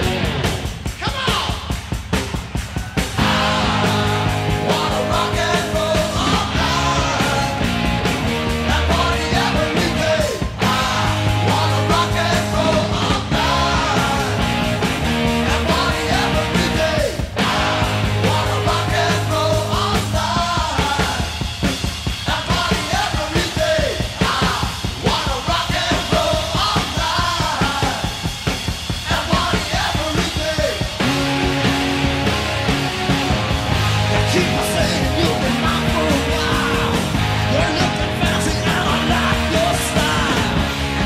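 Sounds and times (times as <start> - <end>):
rock song: 0.0 - 41.0
steady drum beat: 0.0 - 41.0
person singing: 3.2 - 7.8, 34.1 - 40.7
sustained bass notes: 3.2 - 20.6, 31.0 - 41.0.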